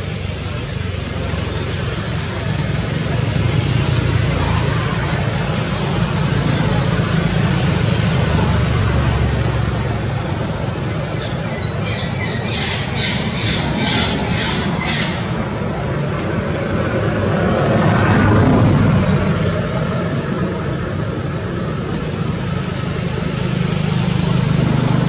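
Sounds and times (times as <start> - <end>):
squeaky animal calls: 10.9 - 15.5.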